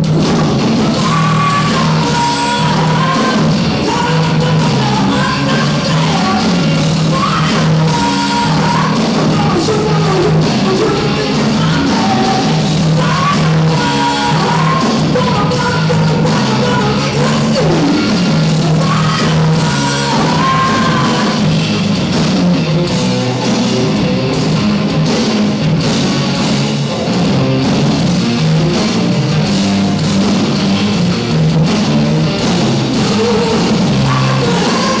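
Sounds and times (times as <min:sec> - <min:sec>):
live rock band: 0:00.0 - 0:35.0
lead singer singing: 0:00.8 - 0:21.5, 0:32.8 - 0:35.0.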